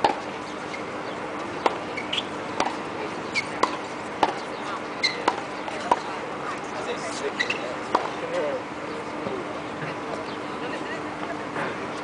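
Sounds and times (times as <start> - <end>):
tennis ball bouncing on hard court: 0.0 - 6.2, 7.3 - 8.2
short high squeaks: 1.9 - 2.3, 3.2 - 3.6, 7.3 - 7.7.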